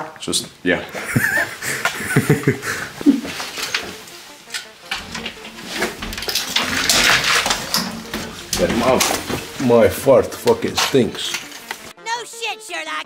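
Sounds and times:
rustling and scraping in window frame: 0:01.0 - 0:11.9
scattered knocks and clicks: 0:03.3 - 0:11.9.

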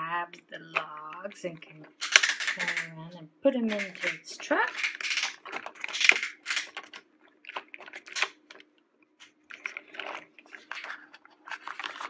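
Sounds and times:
plastic toy clicks and clacks: 0:02.0 - 0:03.0, 0:03.6 - 0:08.6.

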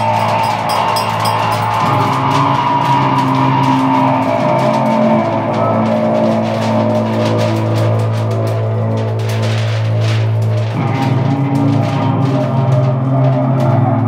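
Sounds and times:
electronic drone music: 0:00.0 - 0:07.5.

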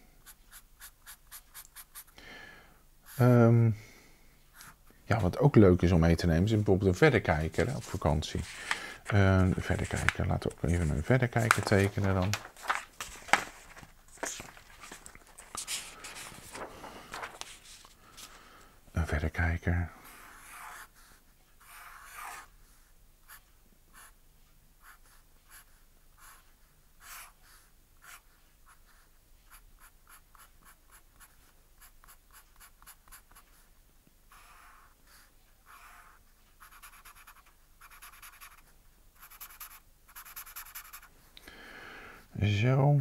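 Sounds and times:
pen scratching on paper: 0:00.2 - 0:02.1, 0:20.1 - 0:21.0, 0:21.6 - 0:22.5, 0:28.0 - 0:33.6, 0:34.3 - 0:41.1.

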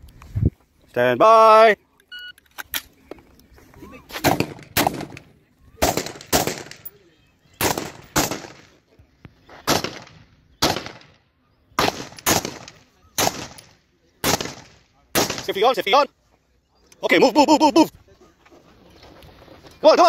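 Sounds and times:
rifle shots with echo: 0:04.2 - 0:06.9, 0:07.6 - 0:08.7, 0:09.7 - 0:11.2, 0:11.8 - 0:15.6.

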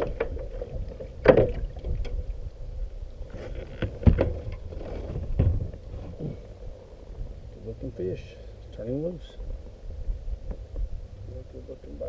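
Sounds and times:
handling knocks on kayak: 0:01.2 - 0:01.7.

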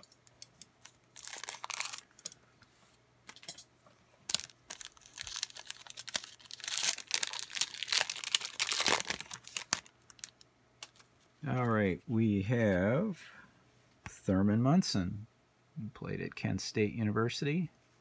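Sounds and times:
plastic wrapper crinkling and tearing: 0:00.8 - 0:02.2, 0:04.3 - 0:11.1.

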